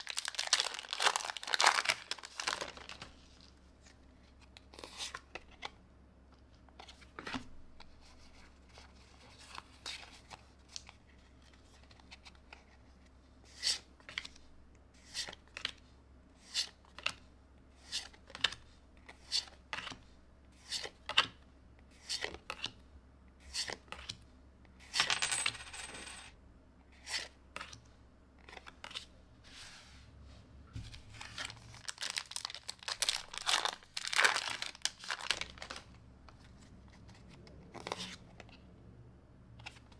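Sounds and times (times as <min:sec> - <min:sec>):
foil pack tearing open: 0:00.0 - 0:02.9, 0:31.8 - 0:35.7.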